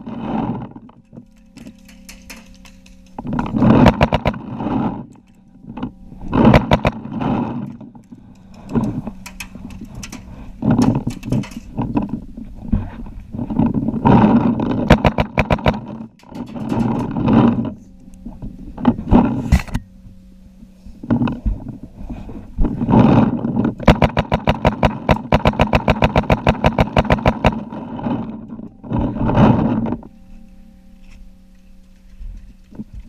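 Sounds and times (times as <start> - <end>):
paintball markers firing pops: 14.9 - 16.3, 23.8 - 27.6.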